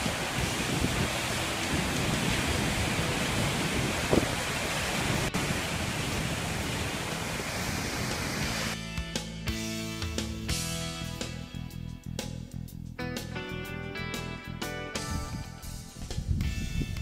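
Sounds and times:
waterfall rushing: 0:00.0 - 0:08.8.

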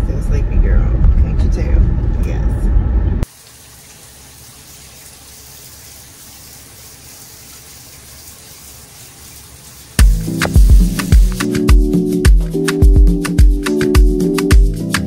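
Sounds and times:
steady hiss: 0:03.2 - 0:15.0.

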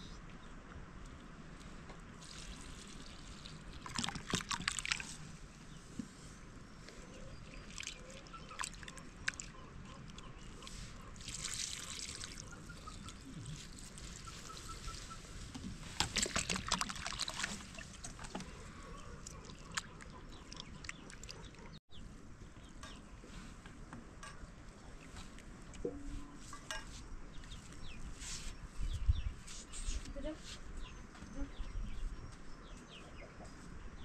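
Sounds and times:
liquid pouring and trickling: 0:02.2 - 0:05.3, 0:11.2 - 0:14.0, 0:16.0 - 0:18.4.

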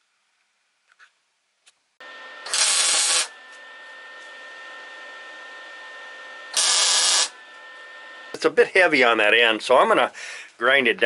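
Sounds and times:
metalworking tool running: 0:02.0 - 0:09.1
harsh bursts of tool on steel: 0:02.2 - 0:03.4, 0:06.4 - 0:07.5.

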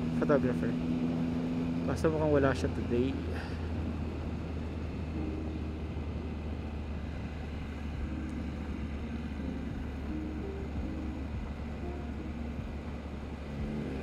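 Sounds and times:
motorcycle engine cruising: 0:00.0 - 0:14.0
road noise: 0:00.0 - 0:14.0.

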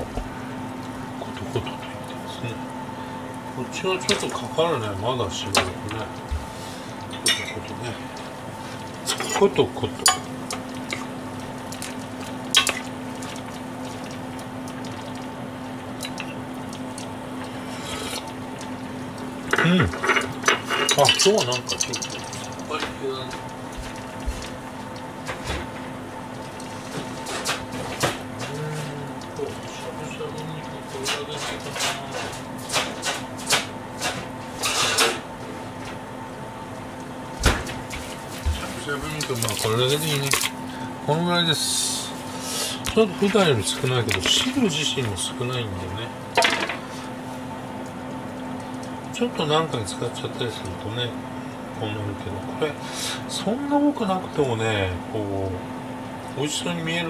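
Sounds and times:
steady hum: 0:00.0 - 0:57.0
soup bubbling in a pan: 0:05.4 - 0:31.2
gas burner hiss: 0:52.8 - 0:53.3.

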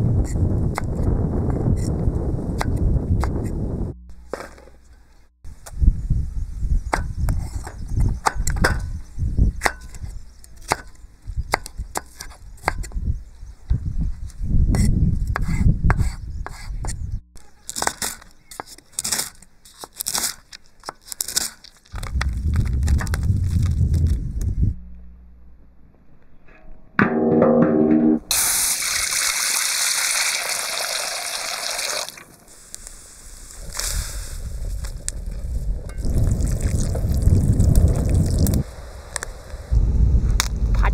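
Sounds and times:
water pouring into wok: 0:28.3 - 0:32.2.

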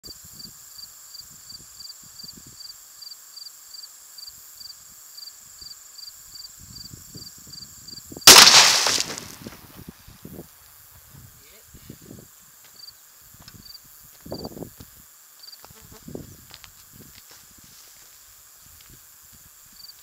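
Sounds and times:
insects chirping: 0:00.1 - 0:20.0
rifle shot: 0:08.3 - 0:09.6.

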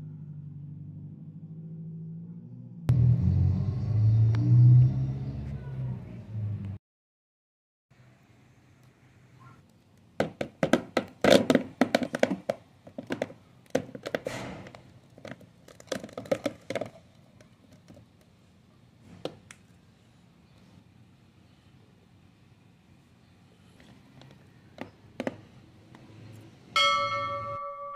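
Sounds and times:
candies dropping into plastic tub: 0:10.2 - 0:18.2.

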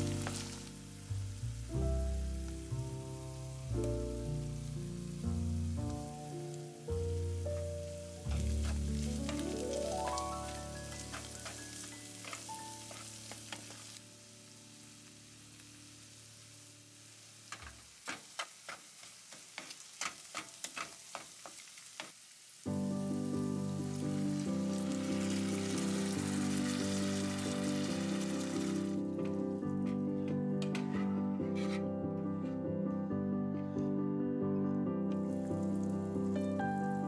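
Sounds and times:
background music: 0:00.0 - 0:15.0, 0:22.7 - 0:37.0
meat sizzling in a frying pan: 0:00.0 - 0:29.8, 0:35.2 - 0:37.0
wooden spatula scraping a pan: 0:07.6 - 0:14.0, 0:17.5 - 0:22.2, 0:28.6 - 0:32.6.

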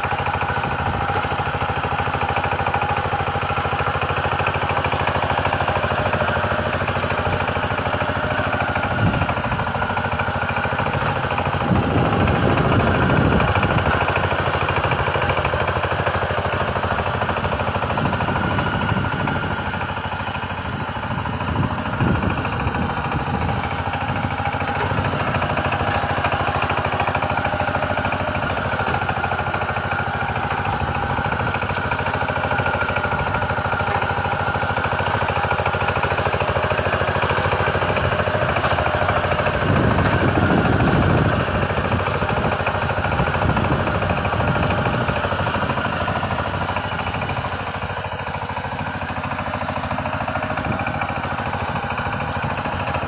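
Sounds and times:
tiller diesel engine running: 0:00.0 - 0:53.0.

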